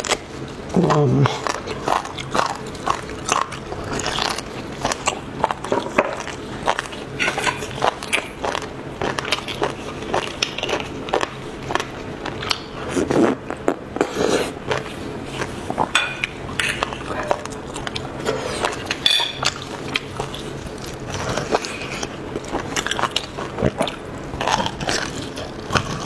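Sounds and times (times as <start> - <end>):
wet chewing: 0.0 - 26.0.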